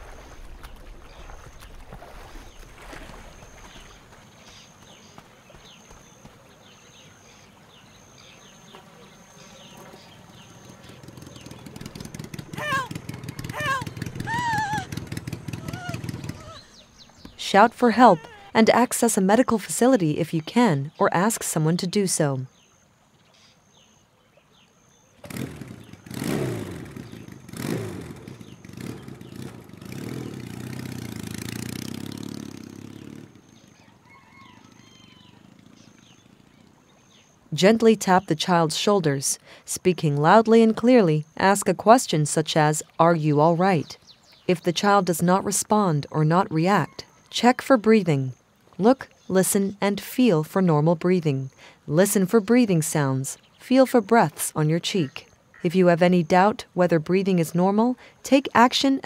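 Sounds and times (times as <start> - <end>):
small motorcycle engine revving: 10.4 - 16.8, 25.2 - 33.6
high falling chirps: 12.2 - 18.6.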